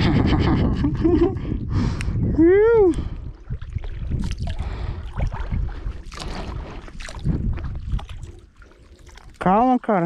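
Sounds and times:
wind rumble on microphone: 0.0 - 9.8
water sloshing and splashing: 2.9 - 10.0.

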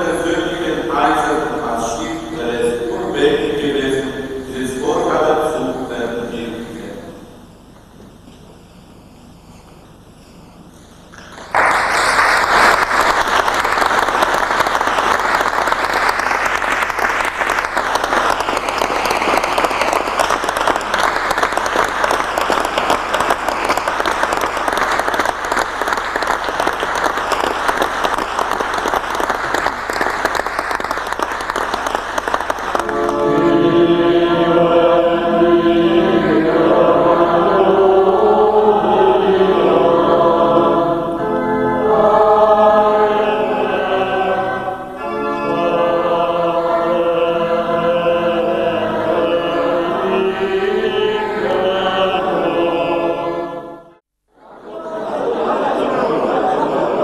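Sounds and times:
large crowd applauding: 11.1 - 33.4
many voices singing together: 32.9 - 57.0.

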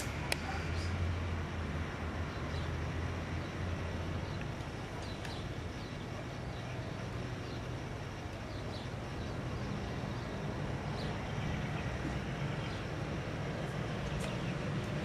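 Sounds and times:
blimp engines droning: 0.0 - 15.0.

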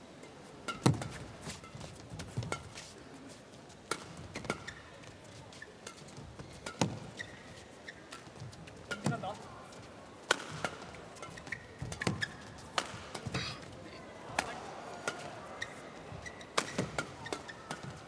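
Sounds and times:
rackets striking shuttlecock: 0.6 - 2.9, 3.9 - 4.8, 5.8 - 7.4, 8.1 - 9.4, 10.2 - 13.4, 14.3 - 15.8, 16.4 - 18.0
shoes squeaking on court: 0.7 - 9.8, 10.7 - 13.7, 15.5 - 18.0.

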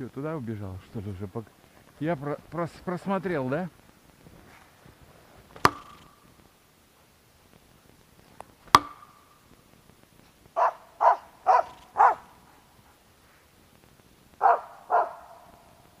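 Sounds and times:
sharp knock: 5.6 - 6.1
dog barking: 10.6 - 12.4, 14.4 - 15.7.

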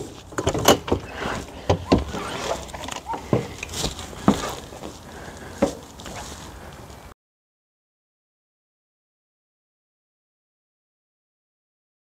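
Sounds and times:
door unlatching and opening: 0.4 - 3.5
footsteps on steps: 0.9 - 7.1.

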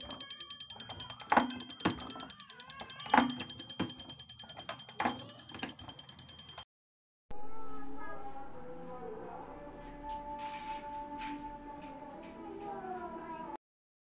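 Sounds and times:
diesel injector ticking rapidly: 0.0 - 6.6
injector clacks: 0.0 - 6.7.

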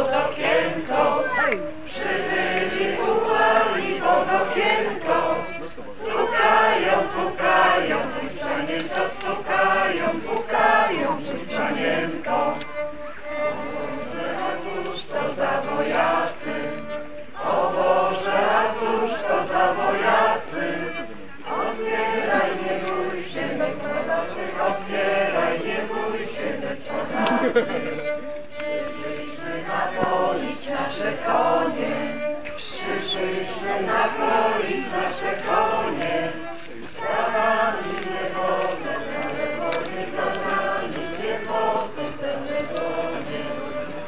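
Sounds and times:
group of people singing: 0.0 - 44.0.

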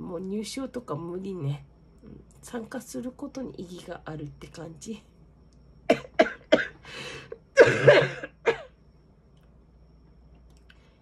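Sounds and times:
woman coughing into cloth: 5.9 - 6.8, 7.6 - 8.7.

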